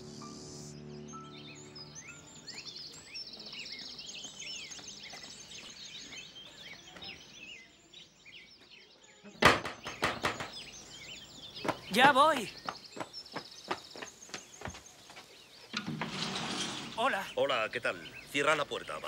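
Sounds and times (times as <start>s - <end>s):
birds chirping and trilling: 0.0s - 19.0s
knocking on wooden door: 9.4s - 10.6s.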